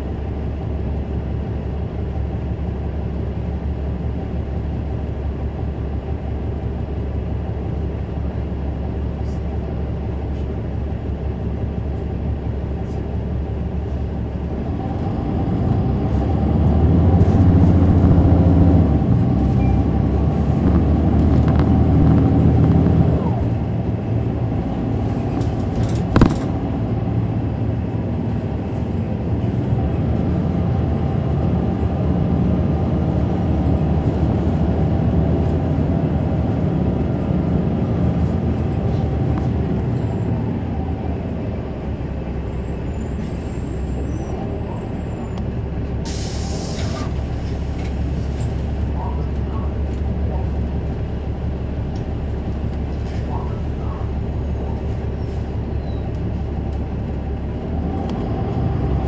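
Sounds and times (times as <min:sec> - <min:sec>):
bus diesel engine hum: 0:00.0 - 0:59.0.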